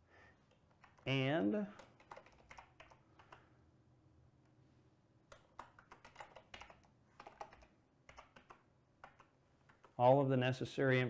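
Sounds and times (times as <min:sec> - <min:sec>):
faint keyboard typing: 0:00.5 - 0:03.6, 0:05.3 - 0:10.0.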